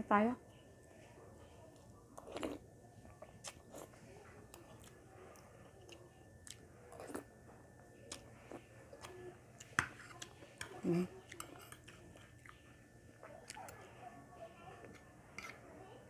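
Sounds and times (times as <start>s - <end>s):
person chewing: 2.2s - 2.6s, 3.4s - 7.3s, 8.1s - 10.4s, 11.2s - 12.6s.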